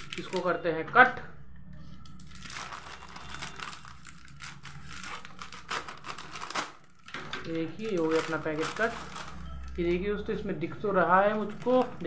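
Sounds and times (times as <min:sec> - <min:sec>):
scissors snipping foil packet: 0:00.0 - 0:00.6, 0:02.0 - 0:09.8, 0:11.3 - 0:12.0
wrapper rustling: 0:00.0 - 0:00.6, 0:02.0 - 0:09.8, 0:11.2 - 0:12.0.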